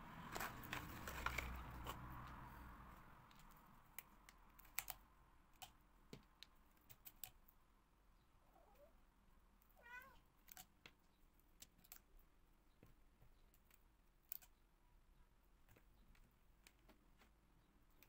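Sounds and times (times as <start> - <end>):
cat meowing: 8.5 - 8.9, 9.8 - 10.3.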